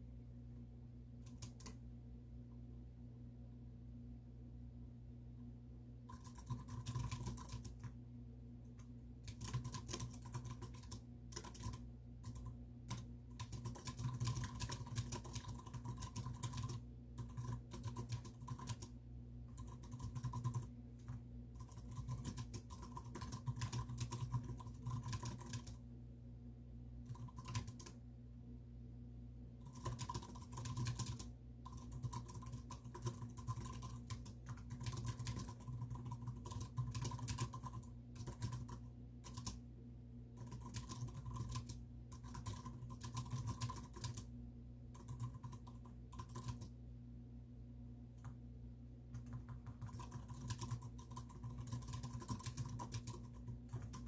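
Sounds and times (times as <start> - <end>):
steady low hum: 0.0 - 54.0
computer keyboard typing: 1.2 - 1.8, 6.1 - 8.0, 8.8 - 25.8, 27.0 - 28.0, 29.6 - 39.6, 40.4 - 44.3, 44.9 - 46.8, 49.1 - 54.0.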